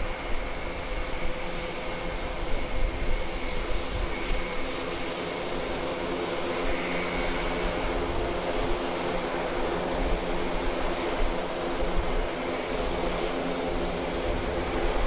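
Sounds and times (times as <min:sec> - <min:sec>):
turboprop engines droning with whine: 0:00.0 - 0:15.0.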